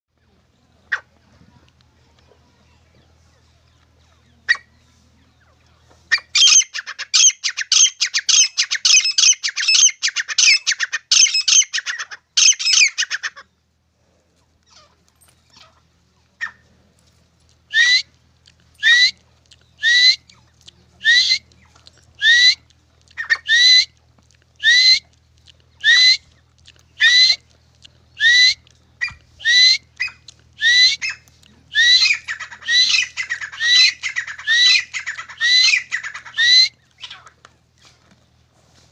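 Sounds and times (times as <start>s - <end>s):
francolins calling: 6.2s - 13.4s, 28.2s - 37.3s.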